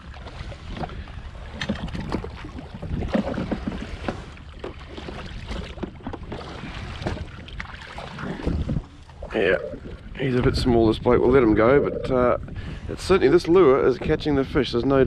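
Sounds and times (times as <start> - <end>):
splashes and knocks: 0.0 - 9.3
small waves slapping hull: 0.0 - 11.6
wind buffeting microphone: 0.0 - 15.0.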